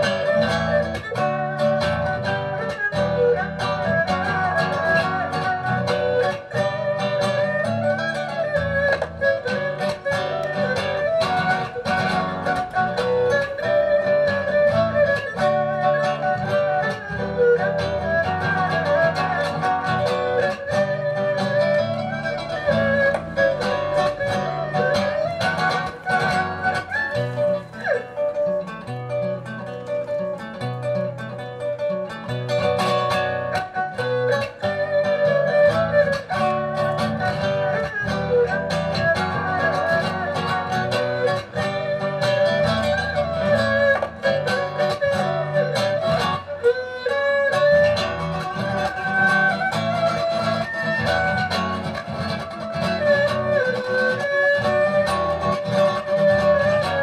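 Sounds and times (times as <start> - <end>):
erhu bowed melody: 0.0 - 57.0
plucked acoustic guitar: 0.0 - 57.0.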